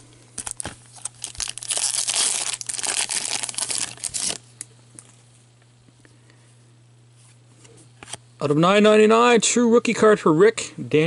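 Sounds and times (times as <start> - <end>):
foil wrapper crinkling: 0.4 - 4.7.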